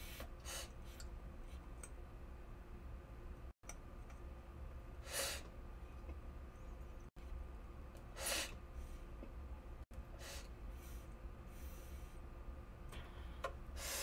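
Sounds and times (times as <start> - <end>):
soft breathy puffs: 10.1 - 12.3.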